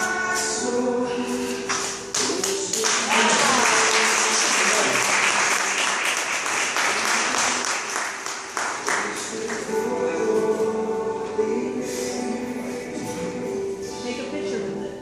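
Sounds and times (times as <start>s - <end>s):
slow music with held chords: 0.0s - 4.6s, 8.8s - 15.0s
audience applauding: 2.2s - 9.7s.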